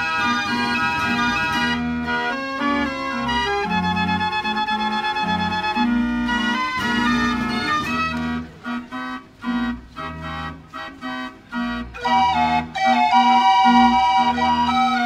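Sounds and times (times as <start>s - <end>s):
fairground organ playing tango: 0.0s - 15.0s.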